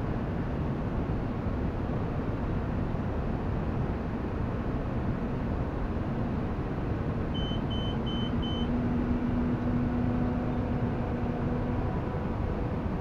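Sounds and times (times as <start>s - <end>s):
short high electronic beeps: 7.4s - 8.7s.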